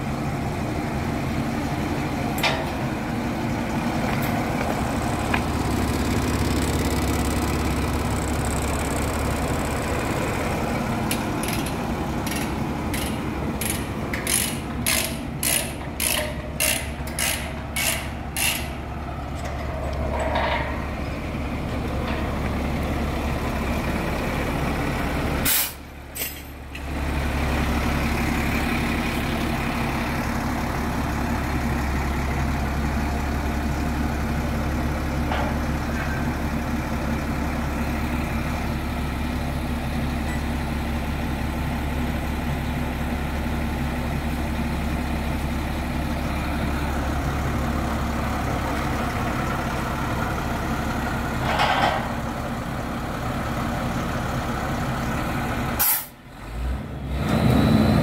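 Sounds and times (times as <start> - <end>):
diesel truck engine running: 0.0 - 58.0
sharp metallic clicks: 11.1 - 18.8.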